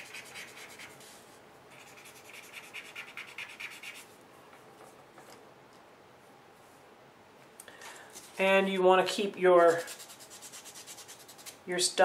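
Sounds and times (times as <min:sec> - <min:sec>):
paper stump rubbing on paper: 0:00.0 - 0:04.1, 0:09.6 - 0:11.6.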